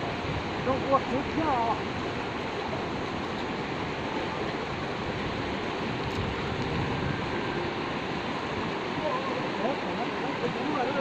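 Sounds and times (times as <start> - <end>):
river rushing over rocks: 0.0 - 11.0.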